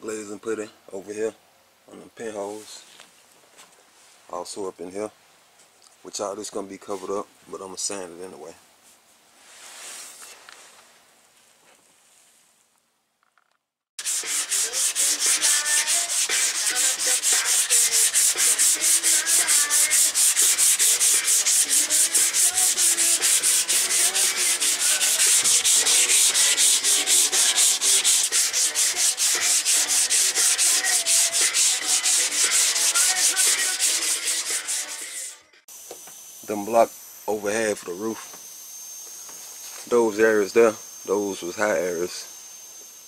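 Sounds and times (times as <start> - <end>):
sandpaper scraping on metal: 14.0 - 35.4.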